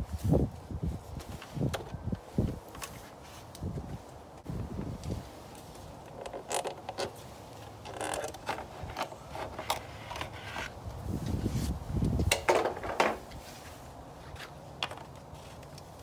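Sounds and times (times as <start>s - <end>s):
handling noise: 4.4s - 16.0s.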